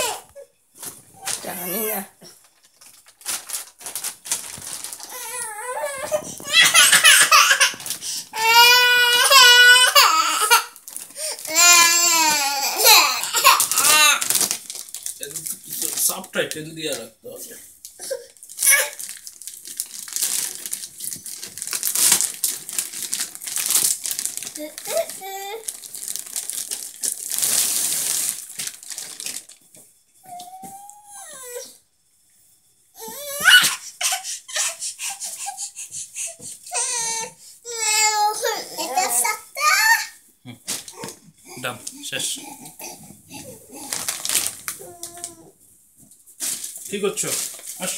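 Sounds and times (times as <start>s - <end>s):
young child crying: 5.1s - 7.8s, 8.4s - 10.8s, 11.5s - 14.3s, 33.0s - 40.2s, 44.8s - 45.6s.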